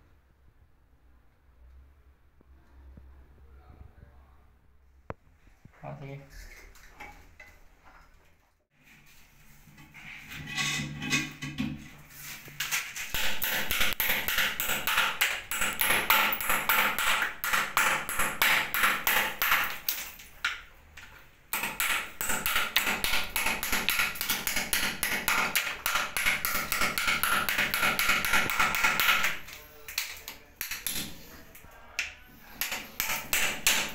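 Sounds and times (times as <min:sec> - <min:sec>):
hand tool chipping tile: 0:13.1 - 0:20.1, 0:21.6 - 0:31.4, 0:32.4 - 0:33.9.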